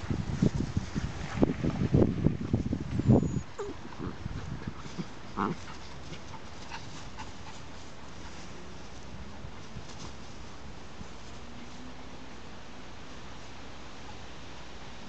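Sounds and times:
puppies growling and scuffling: 0.4s - 12.0s
puppy whimper: 3.0s - 4.2s.

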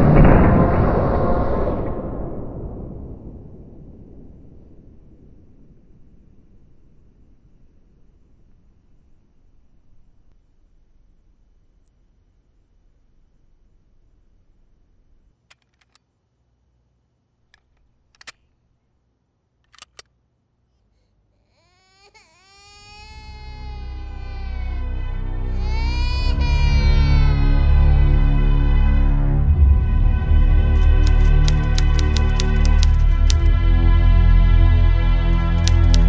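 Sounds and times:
low rumble of blast: 0.0s - 10.4s, 27.0s - 30.8s
high-pitched ringing tone: 0.0s - 28.5s
faint clicks: 1.8s - 21.5s, 30.8s - 33.5s, 35.4s - 36.0s
music: 23.6s - 36.0s.

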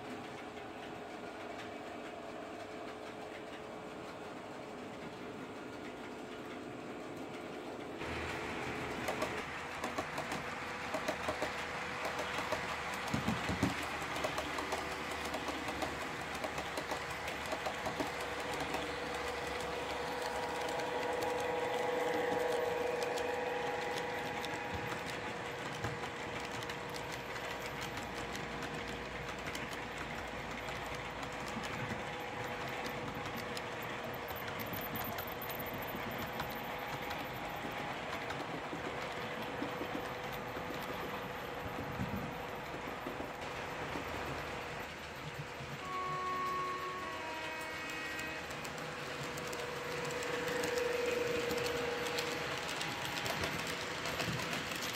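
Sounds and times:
wagon wheels clicking on rail joints: 8.0s - 47.0s, 47.9s - 54.9s
model locomotive motor whine: 8.0s - 54.9s.

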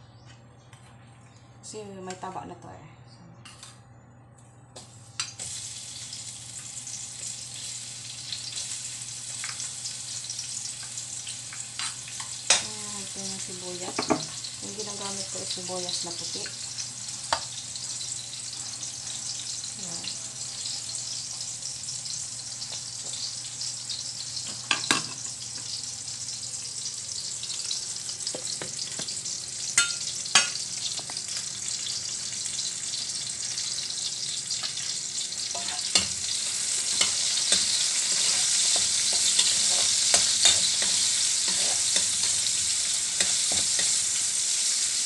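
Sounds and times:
onions sizzling in oil: 4.8s - 45.0s
spatula scraping a wok: 35.6s - 44.2s.

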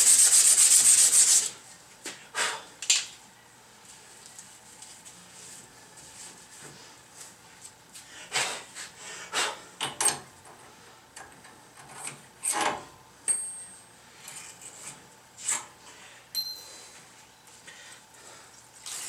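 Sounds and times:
ringing metal clinks: 13.3s - 13.9s, 16.3s - 17.0s.

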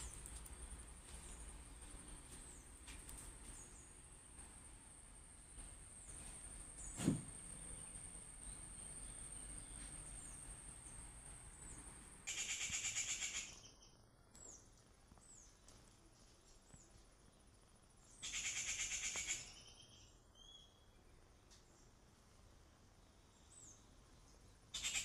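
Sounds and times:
loud rapid bird trills: 12.2s - 13.9s, 18.1s - 20.8s, 24.7s - 25.0s.

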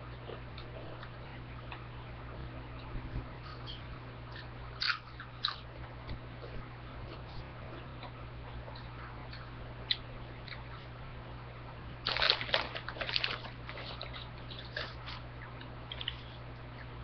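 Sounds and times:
chips crunching being chewed: 4.4s - 5.7s, 12.0s - 17.0s.

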